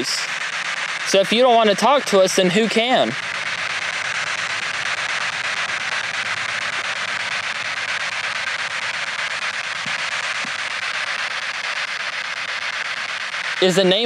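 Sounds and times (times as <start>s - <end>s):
radio static hiss: 0.0s - 14.0s.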